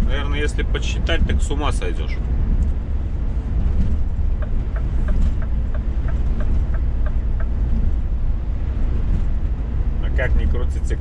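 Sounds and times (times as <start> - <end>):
truck engine and road drone: 0.0 - 11.0.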